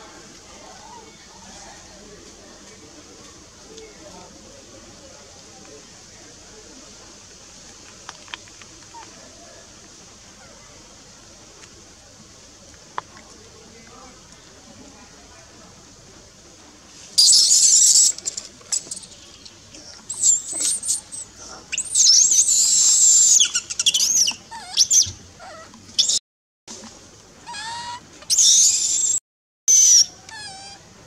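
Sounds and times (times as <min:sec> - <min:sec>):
baby monkey screaming: 0:17.2 - 0:19.1, 0:20.1 - 0:26.2, 0:27.4 - 0:30.8.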